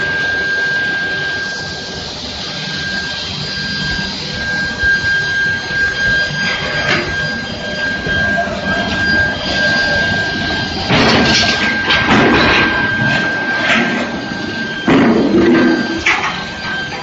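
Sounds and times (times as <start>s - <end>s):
furnace high-pitched whine: 0.0s - 17.0s
workshop noise: 0.0s - 17.0s.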